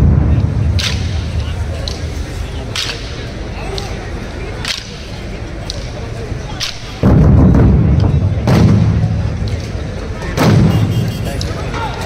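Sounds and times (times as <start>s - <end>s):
big drums pounding: 0.0s - 2.8s, 7.0s - 11.3s.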